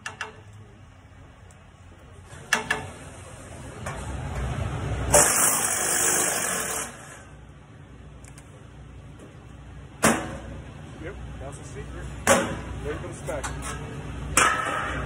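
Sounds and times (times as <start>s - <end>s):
power ratchet running: 5.1s - 7.2s.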